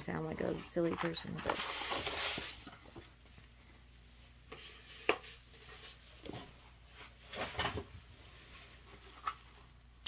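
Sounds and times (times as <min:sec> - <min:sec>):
stiff paper crackling and rustling: 0:00.4 - 0:03.0.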